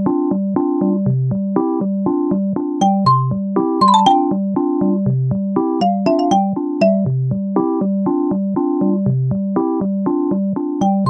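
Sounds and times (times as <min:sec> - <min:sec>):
light keyboard tune: 0:02.6 - 0:05.0, 0:05.6 - 0:07.8, 0:10.6 - 0:11.0.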